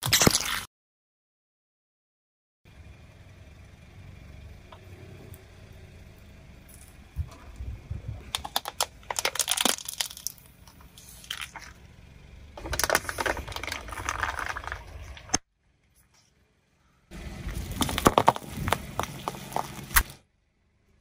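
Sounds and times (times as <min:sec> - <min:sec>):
car tyre crushing objects: 0:08.2 - 0:15.5, 0:17.1 - 0:20.3.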